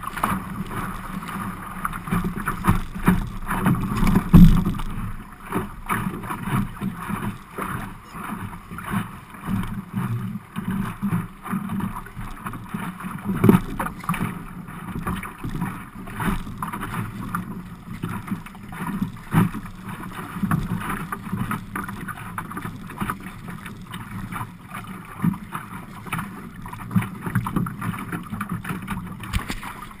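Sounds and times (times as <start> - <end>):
water slapping against boat hull: 0.0 - 30.0.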